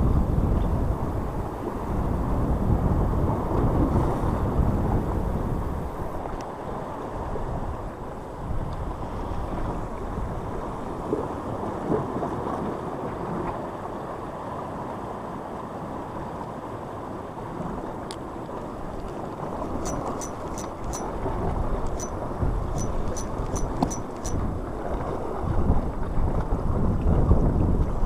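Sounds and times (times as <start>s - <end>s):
wind buffeting microphone: 0.0s - 13.4s, 18.6s - 28.0s
fishing reel clicking: 19.6s - 21.2s, 21.9s - 24.4s.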